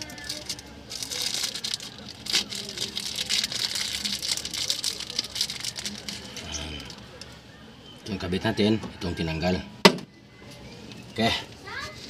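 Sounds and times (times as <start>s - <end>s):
plastic wrapping crinkling: 0.0s - 7.4s.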